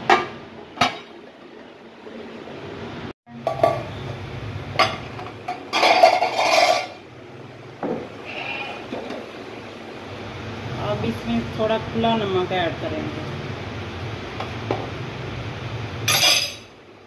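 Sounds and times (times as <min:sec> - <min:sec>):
clinks and clatter: 0:05.7 - 0:07.0.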